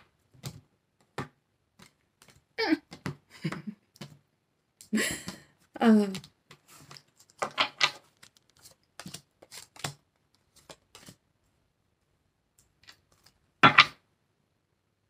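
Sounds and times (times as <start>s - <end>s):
cards shuffled and dealt: 0.3s - 4.2s, 6.0s - 11.2s.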